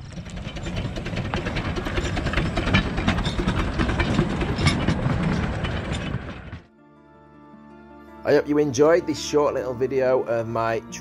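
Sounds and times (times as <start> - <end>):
train low rumble: 0.0 - 6.7
train wheels clicking on rail joints: 0.0 - 6.7.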